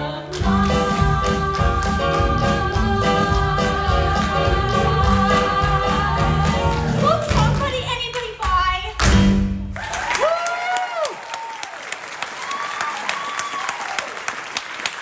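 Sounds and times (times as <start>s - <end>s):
singing with accompaniment: 0.0s - 8.5s
whooping cheers: 9.8s - 14.4s
audience applauding: 9.8s - 15.0s.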